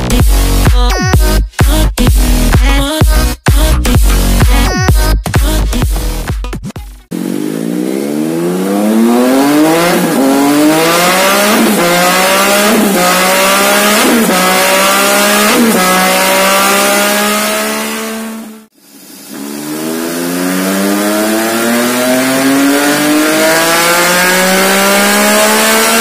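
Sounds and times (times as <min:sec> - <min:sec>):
motorcycle engine revving through gears: 0:07.1 - 0:26.0.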